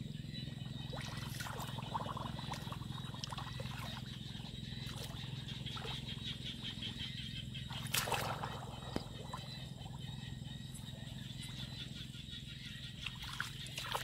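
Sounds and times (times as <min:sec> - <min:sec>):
steady low drone: 0:00.0 - 0:13.8
hands splashing in muddy water: 0:07.7 - 0:09.0.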